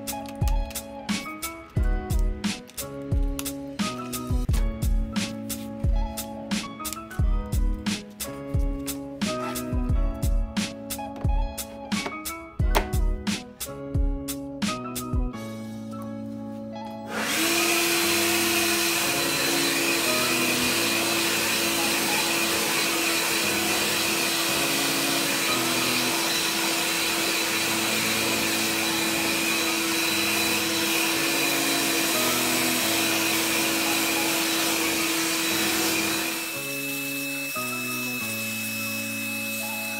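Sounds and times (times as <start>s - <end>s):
leaf blower running: 17.1s - 39.9s.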